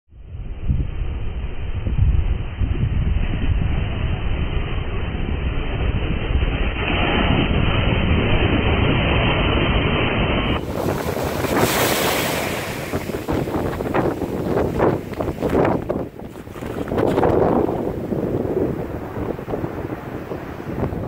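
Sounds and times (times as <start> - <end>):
wind buffeting microphone: 0.2 - 21.0
surf breaking over rocks: 5.4 - 21.0.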